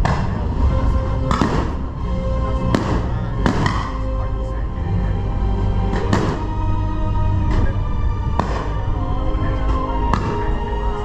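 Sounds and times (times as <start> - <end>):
music: 0.0 - 11.0.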